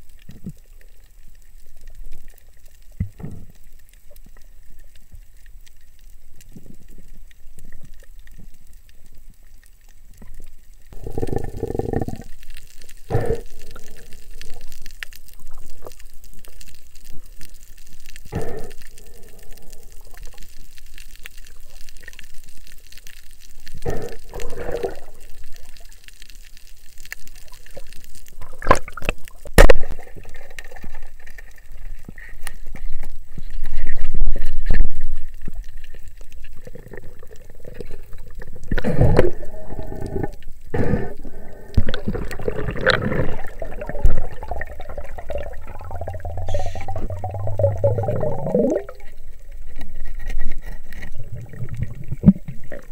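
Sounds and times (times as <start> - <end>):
muffled underwater sloshing: 27.4 - 52.9
low underwater rushing: 33.7 - 52.9.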